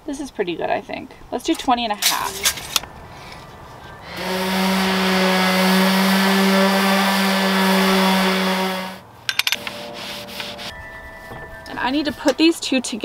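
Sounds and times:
table saw cutting: 4.0s - 9.0s, 9.6s - 10.7s.

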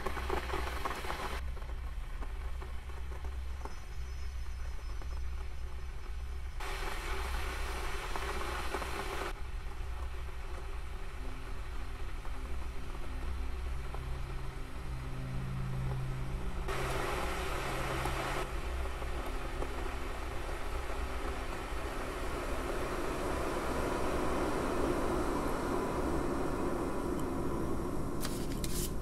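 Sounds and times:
electric kettle heating water: 0.0s - 4.1s, 5.4s - 29.0s
low hum: 0.0s - 29.0s
hiss: 6.6s - 9.4s, 16.7s - 29.0s
low droning tones: 6.7s - 28.1s.

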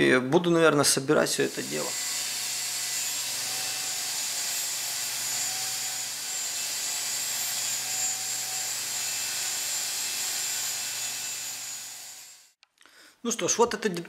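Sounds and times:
belt grinder grinding metal: 1.4s - 12.6s
grinder motor humming: 1.5s - 12.5s.

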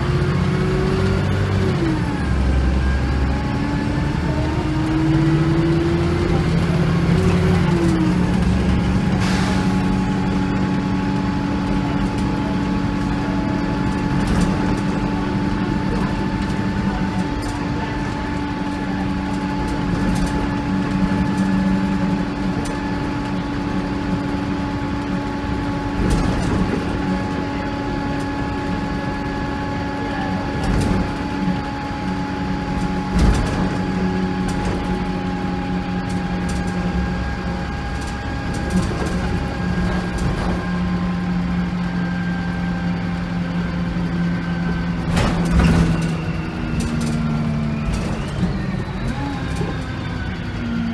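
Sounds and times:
bus engine humming with whine: 0.0s - 50.9s
bus body knocks and rattles: 25.6s - 28.5s, 30.4s - 31.7s, 32.5s - 41.6s, 44.9s - 49.8s.

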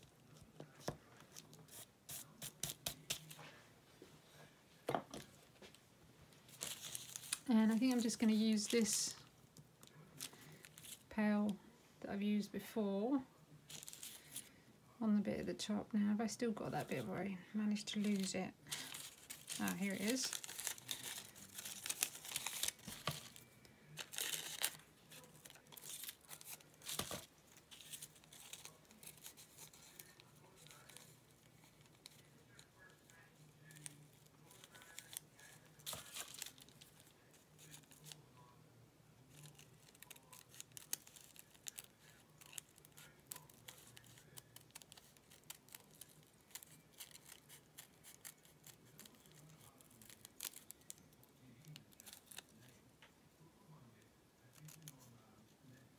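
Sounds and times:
paper and fabric rustling: 5.2s - 9.2s, 16.8s - 38.2s, 39.3s - 52.8s.

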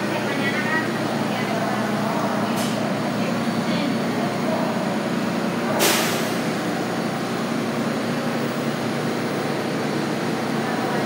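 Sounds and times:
subway train running noise: 0.0s - 11.0s
compressed air hiss: 5.8s - 6.4s.

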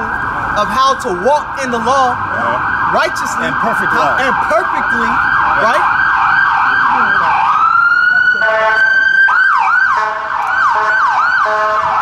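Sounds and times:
emergency vehicle siren: 0.0s - 12.0s
vehicle horn blasts: 8.4s - 8.9s, 10.0s - 11.9s.

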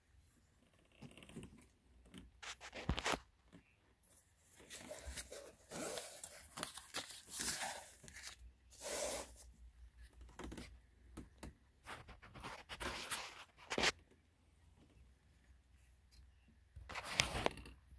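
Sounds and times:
cardboard box rustling and scraping: 4.4s - 9.5s.

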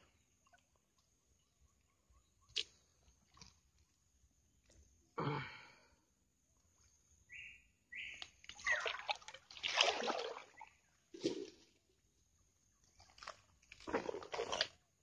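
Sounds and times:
water splashing from wading: 8.4s - 11.6s.

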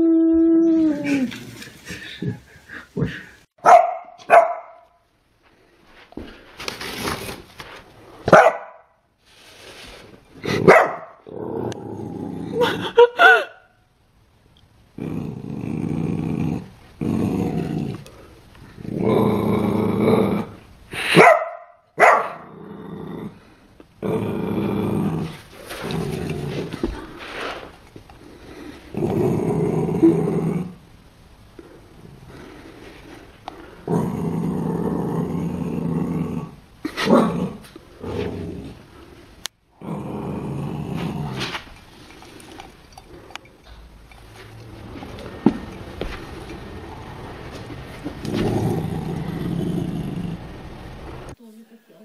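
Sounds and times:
puppy barking: 3.6s - 4.9s, 8.3s - 8.9s, 10.7s - 11.2s, 21.2s - 22.4s
puppy growling: 10.4s - 13.0s, 15.0s - 20.6s, 22.2s - 27.6s, 28.4s - 30.8s, 33.6s - 39.0s, 39.7s - 51.4s.

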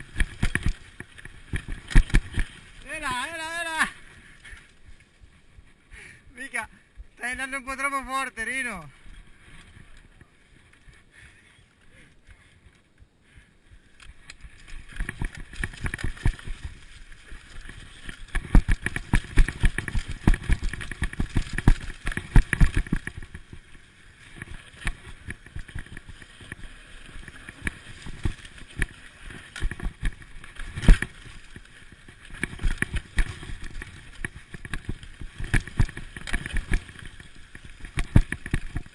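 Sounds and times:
mountain bike rattling and knocking: 0.0s - 3.8s, 14.4s - 23.7s, 24.3s - 38.9s.

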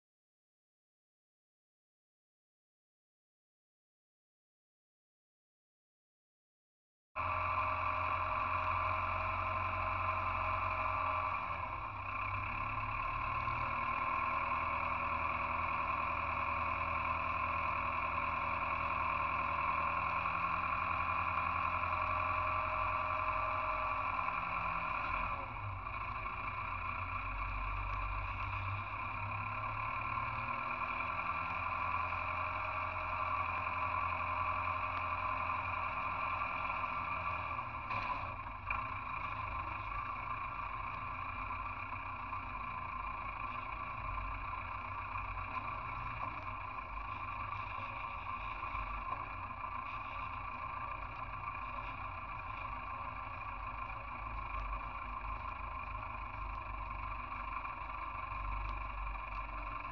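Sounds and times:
tractor engine running: 7.2s - 59.9s.

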